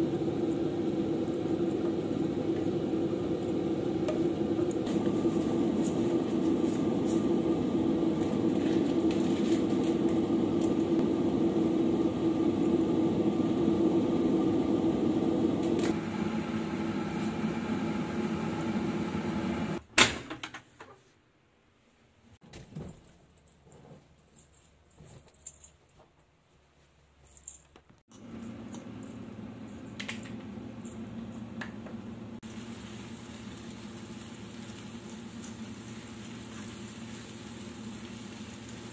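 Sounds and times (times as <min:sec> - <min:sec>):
machine hum: 0:00.0 - 0:19.8
rustling and handling noise: 0:21.8 - 0:30.0.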